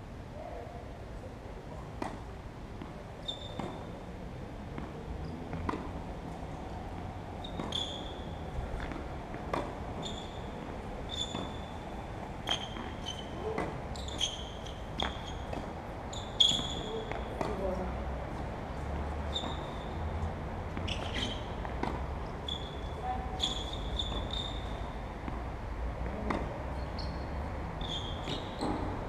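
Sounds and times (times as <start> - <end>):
tennis ball bouncing: 2.0 - 4.0, 4.7 - 22.8, 23.4 - 27.2, 27.8 - 29.0
racket striking ball: 7.5 - 11.7, 12.4 - 15.8, 16.5 - 17.6, 20.7 - 22.1.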